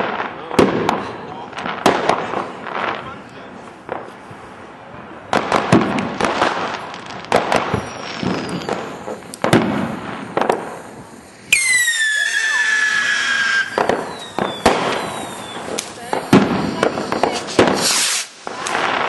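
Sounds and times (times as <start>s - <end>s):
firecrackers banging and crackling: 0.0s - 19.0s
whistling firework: 5.5s - 19.0s.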